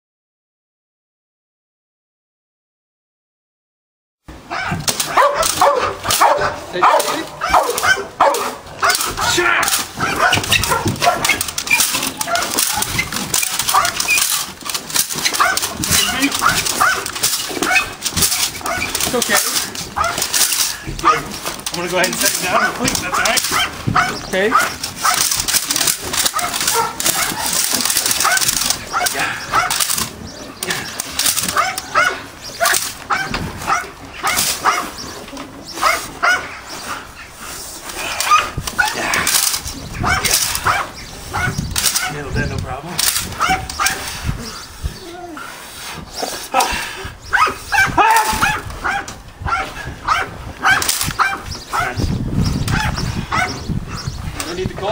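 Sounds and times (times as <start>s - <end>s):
dog whining yelps: 4.5s - 9.4s, 10.0s - 14.4s, 15.1s - 19.0s, 20.0s - 21.3s, 22.5s - 25.2s, 26.3s - 29.8s, 31.4s - 35.0s, 35.8s - 36.7s, 38.2s - 39.0s, 40.0s - 42.2s, 43.3s - 45.4s, 47.2s - 52.1s, 52.7s - 54.1s
scuffling against bite suit: 4.7s - 42.2s
dog yipping and whining: 15.2s - 18.0s, 18.6s - 19.0s, 26.4s - 27.6s, 31.5s - 35.0s, 47.3s - 52.1s.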